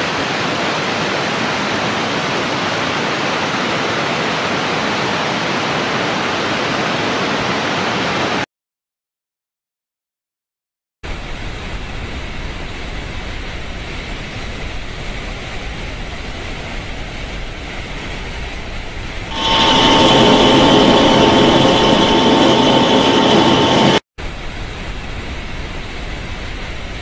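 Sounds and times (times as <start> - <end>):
pump machine whine: 19.3 - 24.0
water rushing through pipe: 19.3 - 24.0.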